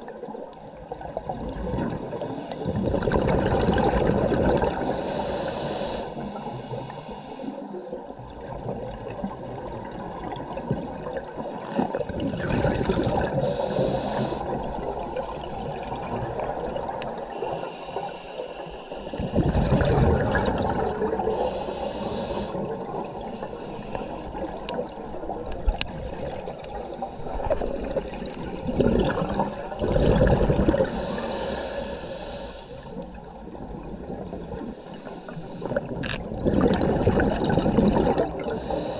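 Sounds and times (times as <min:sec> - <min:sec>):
gurgling exhaled bubbles: 0:00.8 - 0:05.3, 0:08.1 - 0:17.3, 0:19.1 - 0:31.7, 0:35.3 - 0:38.9
regulator inhalation hiss: 0:02.2 - 0:02.9, 0:04.8 - 0:08.0, 0:13.3 - 0:15.2, 0:17.1 - 0:19.4, 0:21.2 - 0:24.4, 0:30.8 - 0:33.0, 0:34.3 - 0:36.0, 0:38.5 - 0:38.9.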